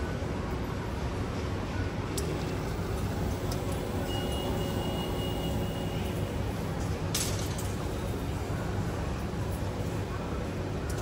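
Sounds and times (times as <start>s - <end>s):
faint high steady tone: 4.0s - 6.2s.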